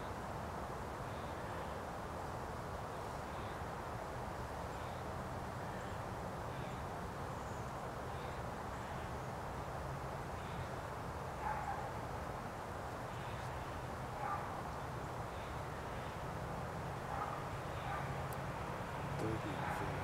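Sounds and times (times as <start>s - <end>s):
low outdoor hum: 0.0s - 20.0s
dog barking faintly: 11.4s - 12.0s, 14.1s - 14.7s, 17.1s - 18.3s, 19.2s - 20.0s.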